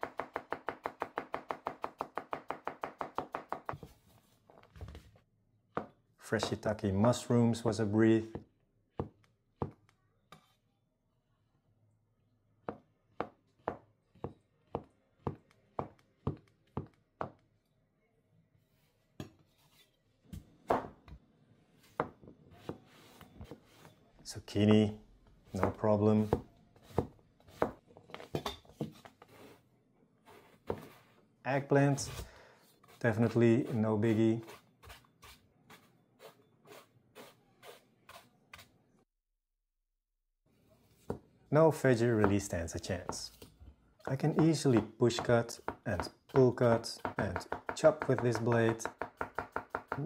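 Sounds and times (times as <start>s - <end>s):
knife chopping on wooden board: 44.3s - 50.0s.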